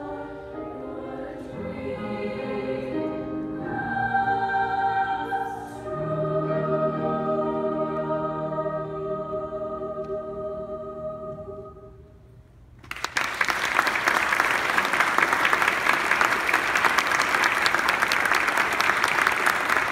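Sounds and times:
audience applause: 0:12.8 - 0:19.9.

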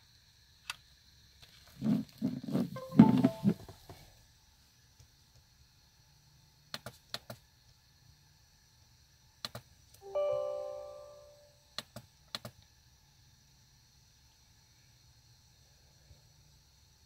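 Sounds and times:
computer chime: 0:02.8 - 0:03.6, 0:10.0 - 0:11.5.

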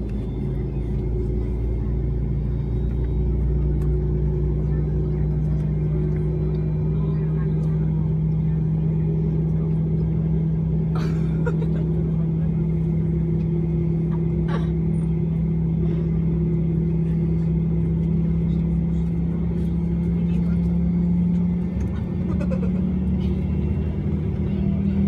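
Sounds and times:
airliner cabin drone: 0:00.0 - 0:25.0.

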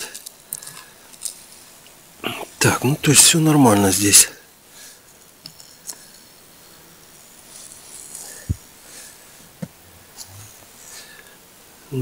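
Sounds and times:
cloth rustling: 0:07.2 - 0:10.4
soft thumps: 0:08.4 - 0:08.7.

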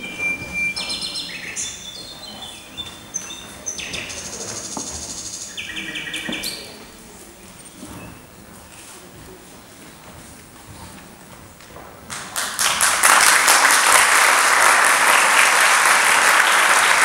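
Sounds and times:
bird-like whistles and trills: 0:00.0 - 0:06.8.

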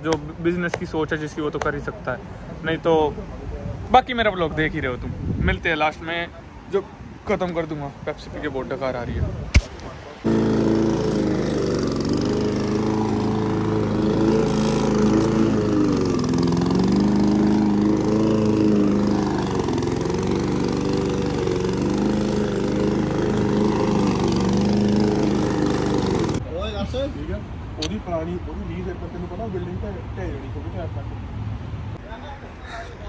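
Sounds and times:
lawn mower engine running: 0:10.3 - 0:26.4.

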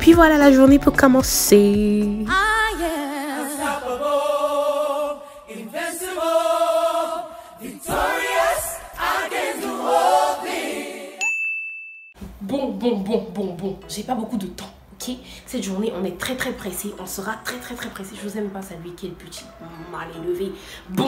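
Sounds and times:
choir singing in harmony: 0:02.3 - 0:11.2.

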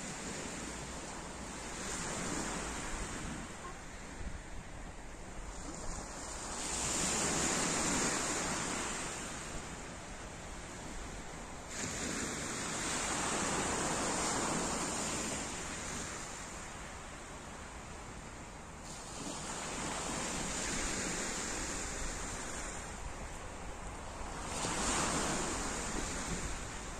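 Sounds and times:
waves washing over pebbles: 0:10.6 - 0:16.6, 0:18.8 - 0:26.9.

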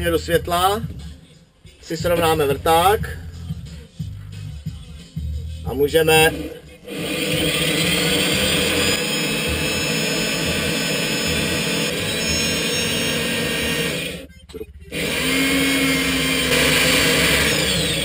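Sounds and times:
electric drill whining: 0:06.8 - 0:14.3, 0:14.9 - 0:18.0.

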